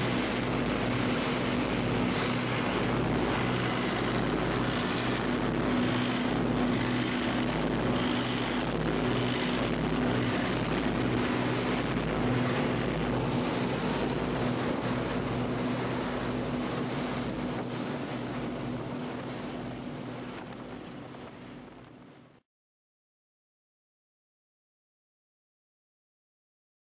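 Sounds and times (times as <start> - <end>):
boat engine droning: 0.0 - 22.4
rush of wake: 0.0 - 22.4
wind: 0.0 - 22.4.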